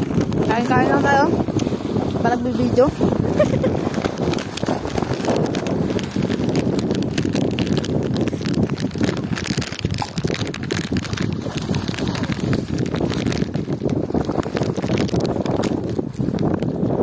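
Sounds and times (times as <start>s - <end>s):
wind buffeting microphone: 0.0s - 17.0s
crackles: 3.3s - 16.8s.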